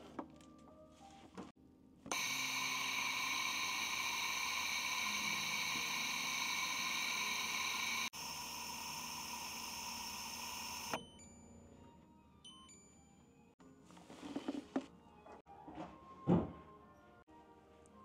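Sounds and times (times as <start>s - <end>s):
machine hissing and whining: 2.1s - 11.0s.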